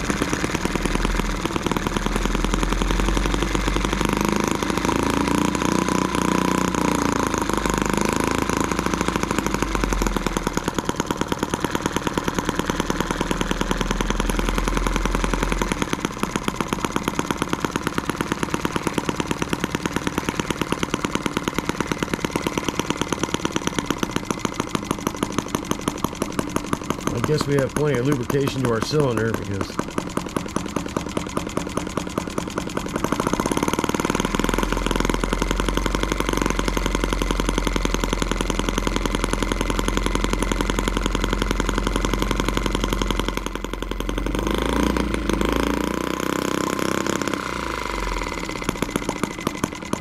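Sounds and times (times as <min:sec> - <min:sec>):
model engine running: 0:00.0 - 0:50.0.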